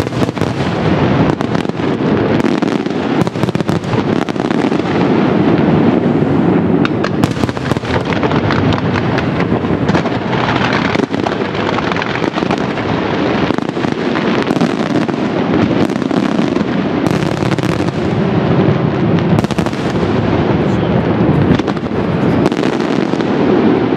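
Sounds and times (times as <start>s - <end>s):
fireworks bangs and crackling: 0.0s - 23.9s.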